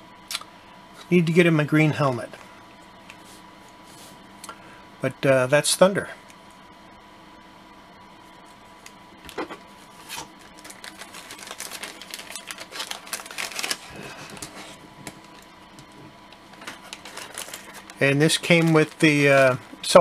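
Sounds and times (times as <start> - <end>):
plastic bag crinkling: 10.1 - 20.0.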